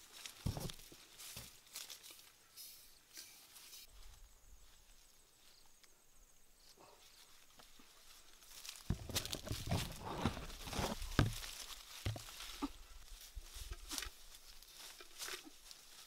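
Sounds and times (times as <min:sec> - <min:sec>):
branches cracking: 0:00.0 - 0:02.3, 0:07.4 - 0:16.0
leaves and twigs rustling: 0:00.0 - 0:16.0.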